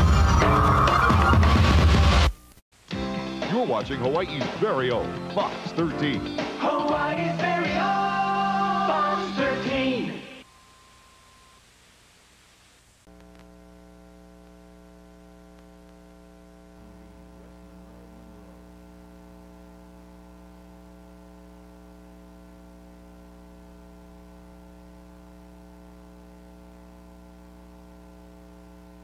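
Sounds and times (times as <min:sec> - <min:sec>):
electrical hum: 0:08.5 - 0:29.0.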